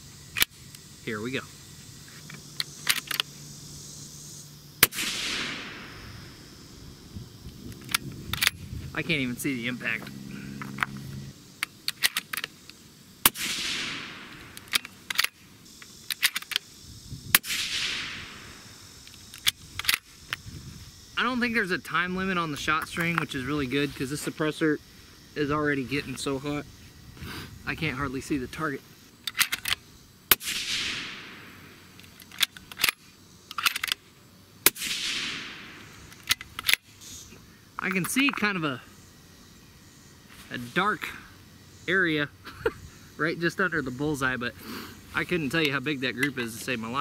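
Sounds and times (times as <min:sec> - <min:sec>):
suppressed rifle shots: 0:04.8 - 0:06.3, 0:13.2 - 0:15.4, 0:17.3 - 0:18.7, 0:29.3 - 0:31.6, 0:34.6 - 0:36.8
rifle bolt clicks: 0:11.6 - 0:12.5, 0:14.3 - 0:15.4, 0:16.0 - 0:16.6, 0:29.3 - 0:29.8, 0:32.0 - 0:34.0, 0:36.1 - 0:36.8.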